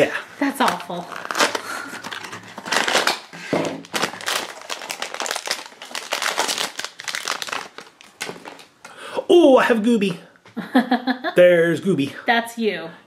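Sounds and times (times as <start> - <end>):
foil bag crinkling and tearing: 0.4 - 8.7.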